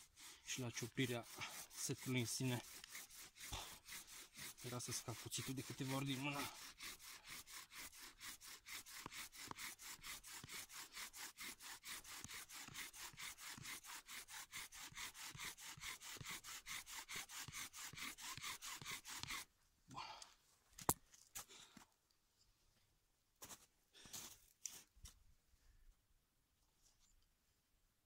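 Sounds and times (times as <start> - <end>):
bow drill rubbing strokes: 0.0 - 19.5.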